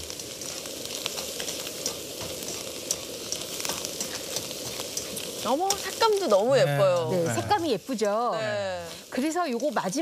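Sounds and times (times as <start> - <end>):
food sizzling in frying pan: 0.0 - 10.0
chopsticks clicking against pan: 0.1 - 7.2, 9.3 - 10.0.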